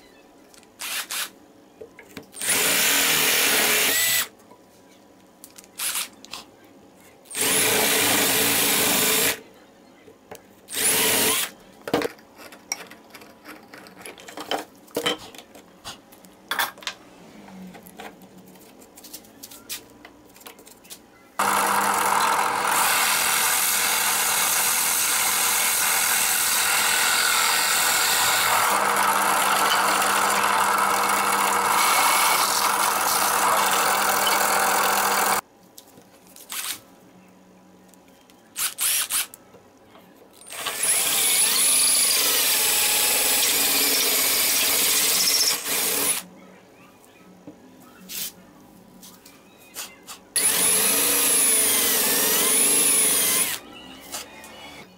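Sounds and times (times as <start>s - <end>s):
hand drill boring through plywood: 2.4s - 4.3s, 7.3s - 9.4s, 10.7s - 11.5s, 21.4s - 35.4s, 40.5s - 46.2s, 50.4s - 53.6s
clicks and knocks of handling: 11.8s - 17.0s.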